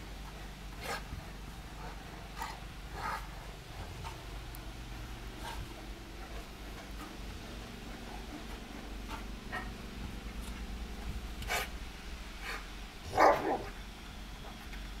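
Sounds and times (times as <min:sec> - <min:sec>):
dog barking: 0:13.1 - 0:13.8.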